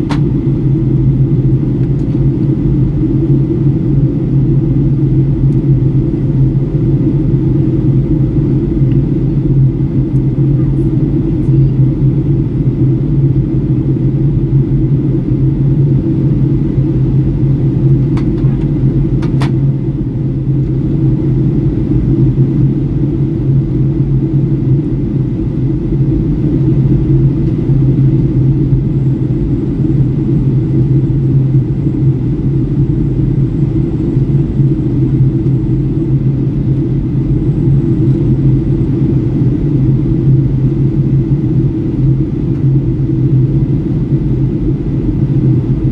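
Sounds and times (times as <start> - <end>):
airliner cabin engine rumble: 0.0 - 45.9.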